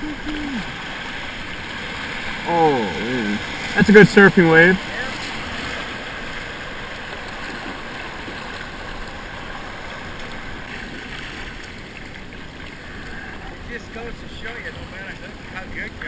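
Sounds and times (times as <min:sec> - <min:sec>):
whitewater rushing and splashing: 0:00.0 - 0:16.0.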